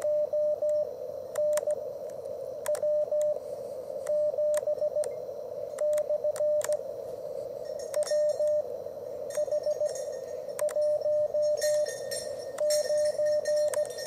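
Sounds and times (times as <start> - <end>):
morse code tone: 0.0 - 1.8, 2.6 - 3.4, 5.8 - 6.8, 7.6 - 14.0
receiver hiss: 0.0 - 14.0
sharp clicks: 0.7 - 3.3, 4.0 - 6.8, 10.6 - 10.9.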